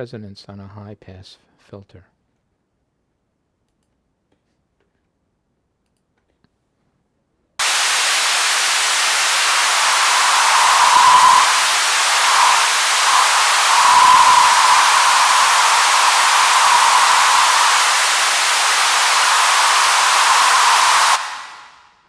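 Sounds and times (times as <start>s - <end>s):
resonant filter ringing: 7.6s - 21.7s
filtered white noise hiss: 7.6s - 21.9s.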